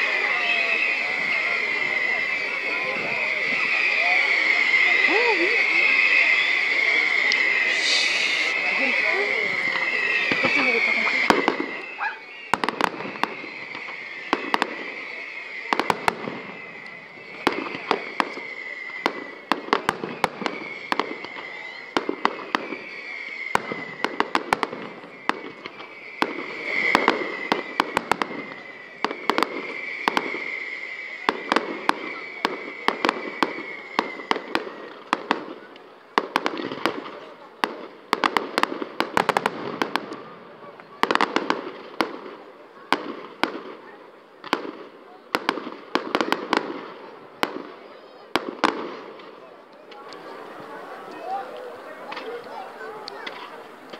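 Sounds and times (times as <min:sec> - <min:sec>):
high whistling tone: 0:00.0 - 0:35.0
fireworks bangs and crackles: 0:00.0 - 0:53.9.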